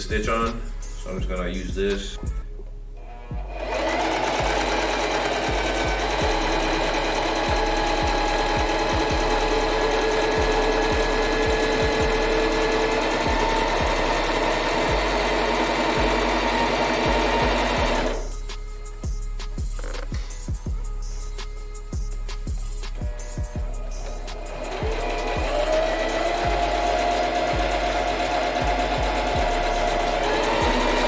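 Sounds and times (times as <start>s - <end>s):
sewing machine running: 3.0s - 18.3s, 23.1s - 31.0s.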